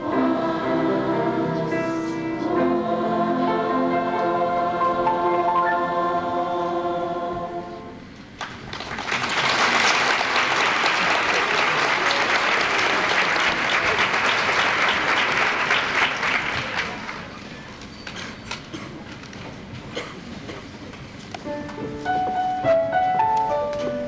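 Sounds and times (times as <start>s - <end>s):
choir singing final chord: 0.0s - 8.0s
audience applauding: 8.4s - 17.4s.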